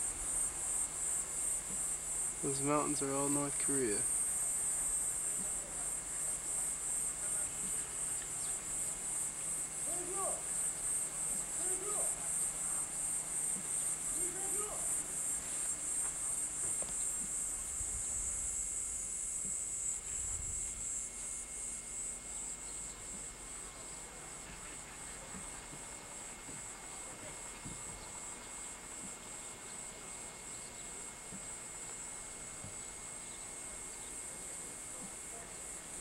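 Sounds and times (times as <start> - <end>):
pulsing insect chorus: 0.0 - 36.0.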